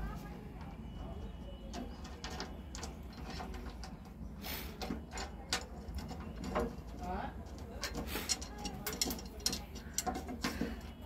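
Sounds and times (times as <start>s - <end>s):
bolt clicking and scraping on metal: 4.8s - 10.9s.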